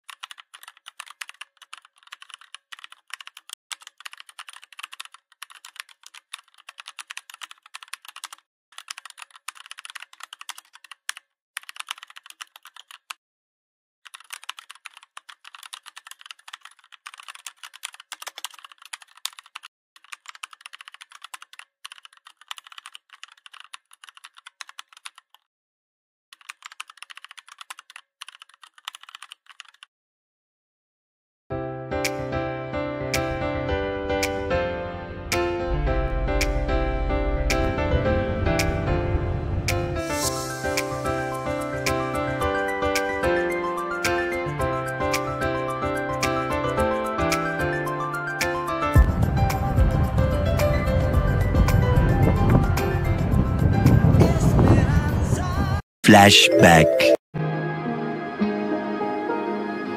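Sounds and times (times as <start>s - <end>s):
keyboard typing: 0.0s - 13.2s, 14.0s - 25.4s, 26.3s - 29.9s.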